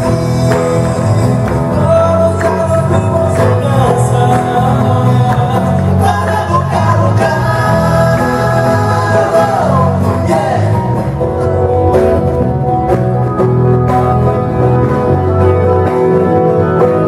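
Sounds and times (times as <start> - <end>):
man singing: 0.0 - 11.6
bass line: 0.0 - 17.0
keyboard: 0.0 - 17.0.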